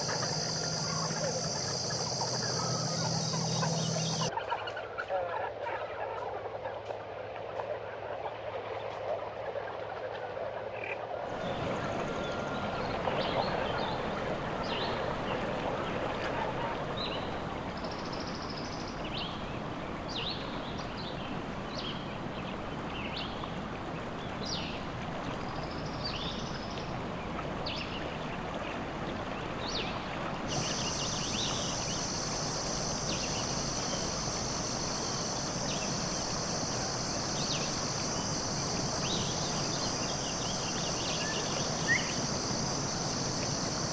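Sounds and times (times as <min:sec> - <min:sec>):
high insect buzz: 0:00.0 - 0:04.3, 0:30.5 - 0:43.9
steady rush like running water: 0:00.0 - 0:43.9.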